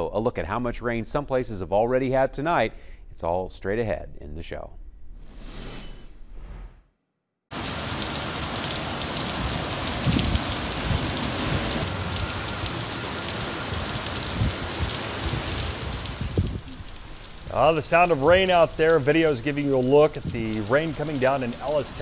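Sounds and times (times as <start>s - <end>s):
short whoosh: 5.1s - 7.0s
heavy rain pouring: 7.5s - 22.0s
wind gusts buffeting microphone: 9.4s - 12.5s, 13.7s - 22.0s.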